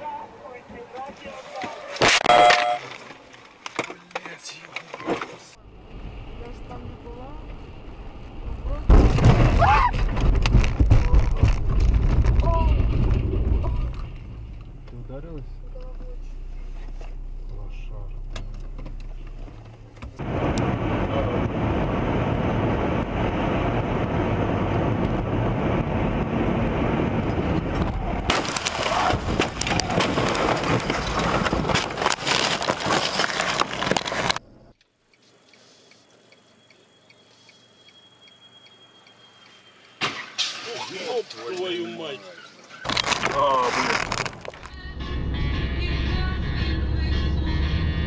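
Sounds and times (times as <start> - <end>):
sharp cracks and knocks: 8.9 - 14.7, 27.8 - 34.9, 42.8 - 44.7
faint regular ticking: 34.7 - 39.6.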